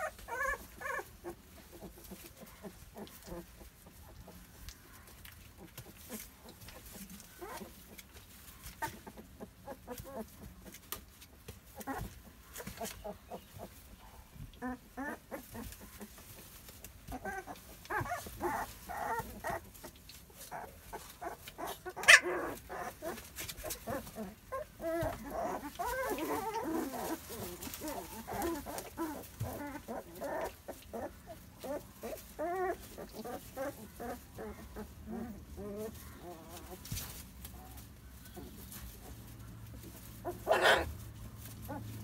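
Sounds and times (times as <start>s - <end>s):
puppies whimpering and squeaking: 0.0s - 42.0s.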